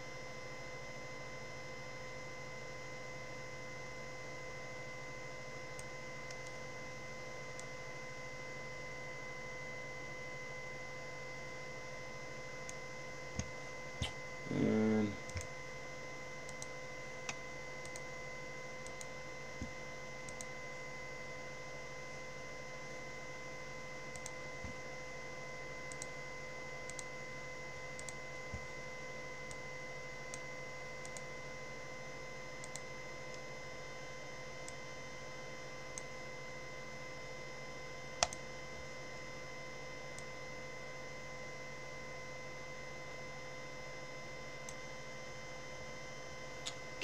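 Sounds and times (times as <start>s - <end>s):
brief wordless vocal sound: 14.0s - 15.2s
mouse and keyboard clicks: 38.2s - 38.4s.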